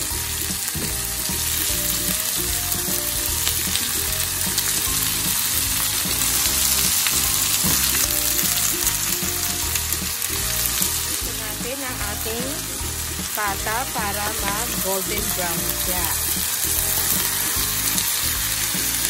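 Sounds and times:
meat sizzling in hot oil: 0.0 - 19.0.

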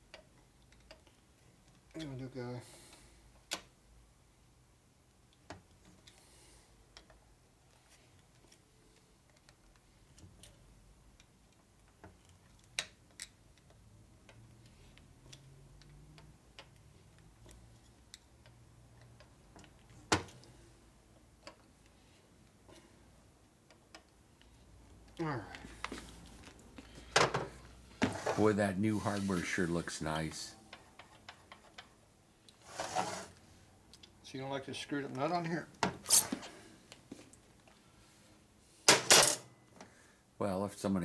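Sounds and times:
hand tools and metal parts clinking: 36.0 - 36.6.

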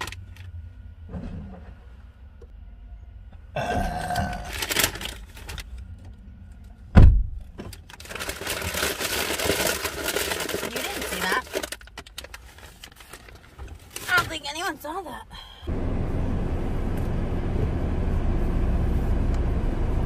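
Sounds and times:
heavy thump: 7.0 - 7.5.

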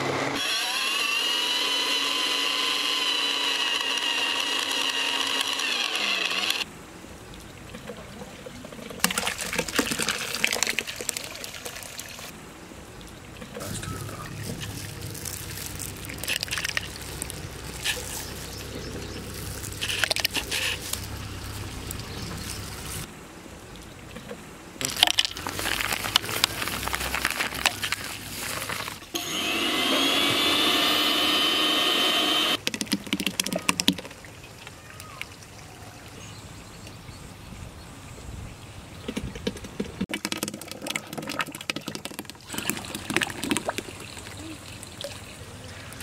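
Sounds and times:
blender motor running: 0.1 - 6.6, 29.1 - 32.6.

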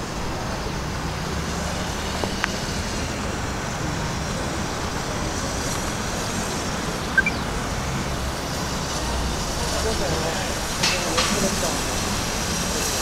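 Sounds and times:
short high chirps: 7.2 - 7.5.

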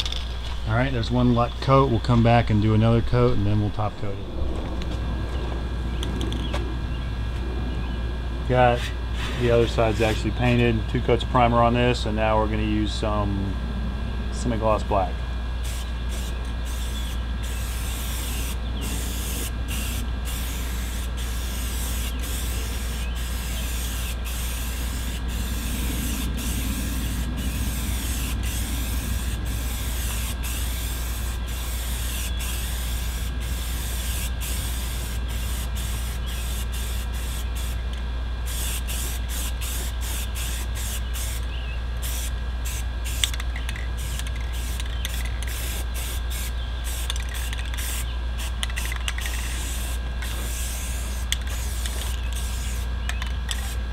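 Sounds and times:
spray paint can hissing: 15.6 - 37.9, 38.5 - 53.8.

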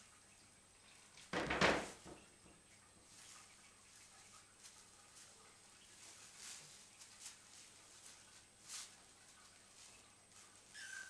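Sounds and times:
plastic bag rustling: 3.1 - 11.0.

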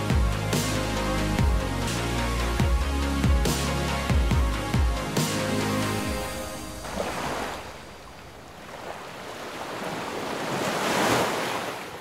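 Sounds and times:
waves washing onto shore: 6.2 - 12.0.

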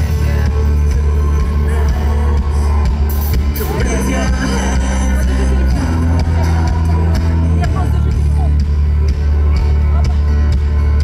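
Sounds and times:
person singing: 0.0 - 10.3
electronic rock music: 0.0 - 11.0
heavy bass line: 0.0 - 11.0.

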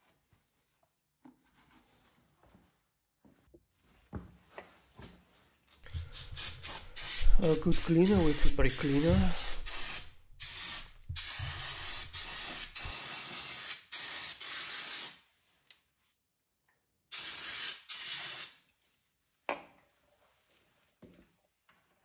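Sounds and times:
aerosol can spraying bursts: 5.9 - 15.2, 17.1 - 18.6.

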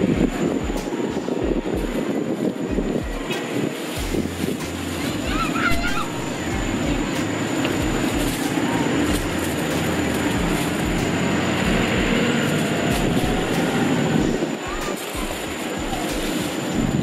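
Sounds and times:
vehicle engine and road noise: 0.0 - 17.0.

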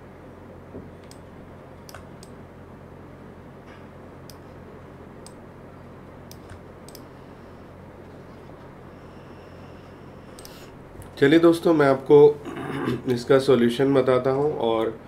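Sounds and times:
steady low hum: 0.0 - 15.0
faint irregular clicks: 6.2 - 7.1, 10.3 - 11.2.

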